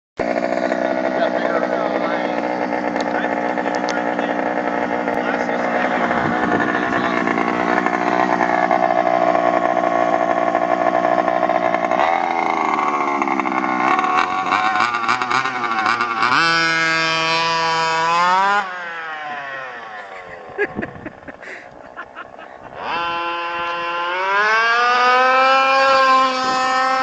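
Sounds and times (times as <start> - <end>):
small two-stroke engine revving: 0.2 - 27.0.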